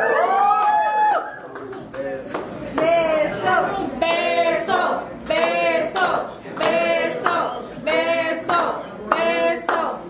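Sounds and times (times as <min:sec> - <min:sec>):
sharp hand claps: 0:00.1 - 0:02.9, 0:04.0 - 0:09.9
voices singing repeated phrase: 0:02.7 - 0:10.0.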